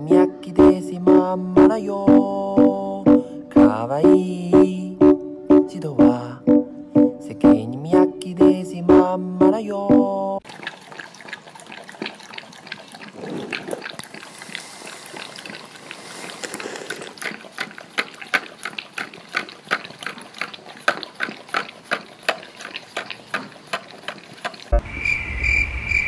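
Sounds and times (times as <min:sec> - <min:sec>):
dog licking and lapping: 0:10.4 - 0:24.7.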